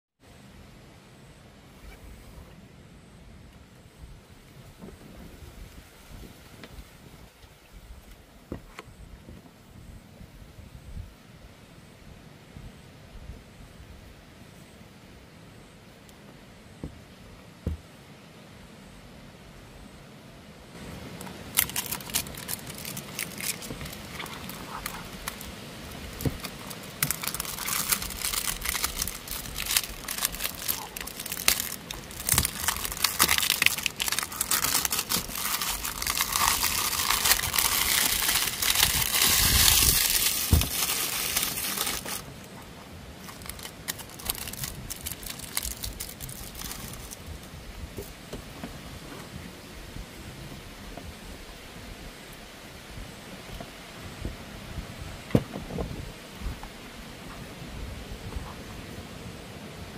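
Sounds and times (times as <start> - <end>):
plastic wrap crinkling and tearing: 21.2 - 42.3, 43.2 - 47.3.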